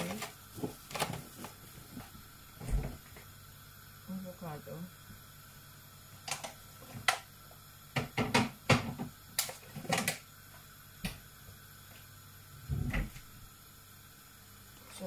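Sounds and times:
clicks and knocks at kitchen counter: 0:08.0 - 0:10.2.

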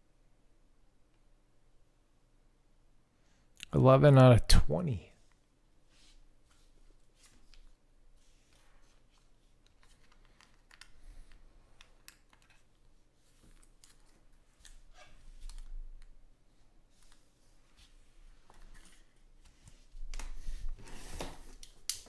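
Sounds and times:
trading cards clicking and rustling: 0:09.2 - 0:12.8.

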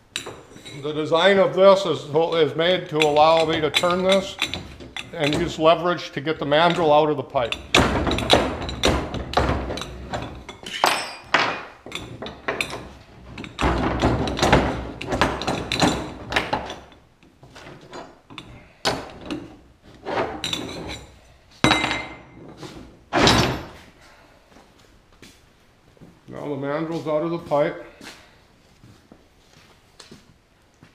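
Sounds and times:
metal knocks and clanks: 0:02.2 - 0:23.8.

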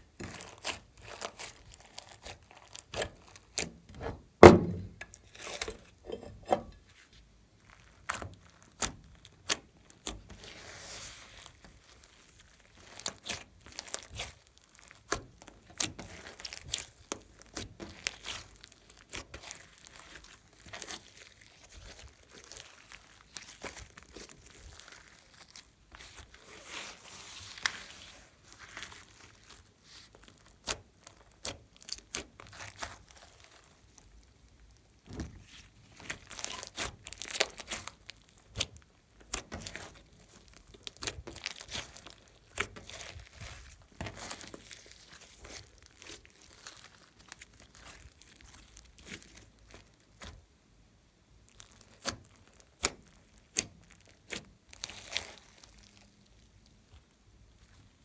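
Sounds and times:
slime squelching: 0:00.0 - 0:50.6, 0:51.3 - 0:58.0
slime clicking and popping: 0:51.6 - 0:55.7.

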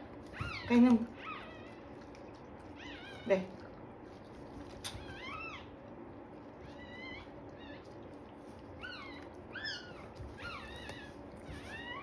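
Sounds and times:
puppy crying: 0:00.3 - 0:01.9, 0:02.7 - 0:03.5, 0:04.9 - 0:05.8, 0:06.6 - 0:08.1, 0:08.7 - 0:12.0.

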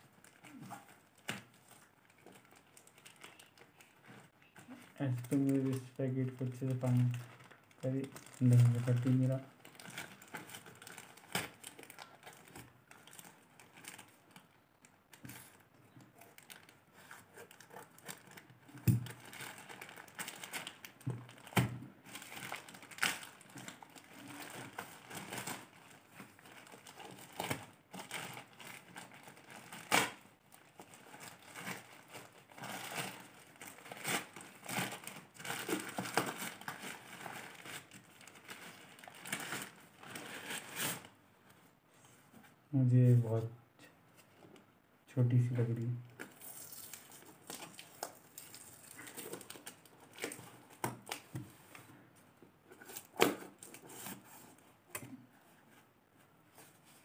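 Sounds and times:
plastic bag crinkling: 0:00.2 - 0:14.6, 0:16.2 - 0:41.2, 0:46.2 - 0:51.8.

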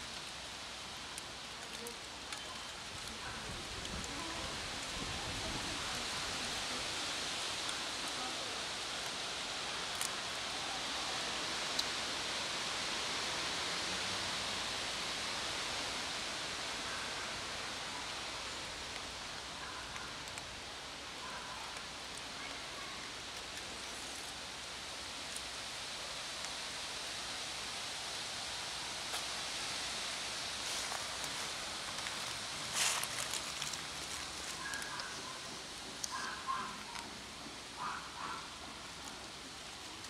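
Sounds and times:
outdoor background hiss: 0:00.0 - 0:40.0
kittens crunching dry kibble: 0:30.6 - 0:37.1.

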